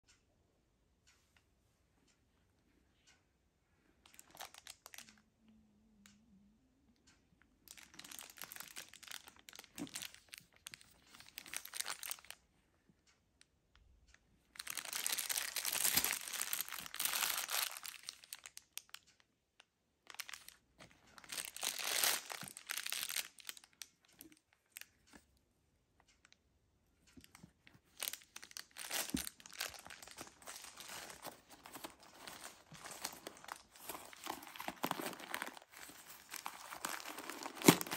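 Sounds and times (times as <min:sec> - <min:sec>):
plastic wrap crinkling and tearing: 0:04.1 - 0:05.2, 0:07.7 - 0:12.4, 0:14.6 - 0:19.0, 0:20.1 - 0:23.8, 0:27.3 - 0:37.9
tissue paper rustling: 0:28.0 - 0:37.9.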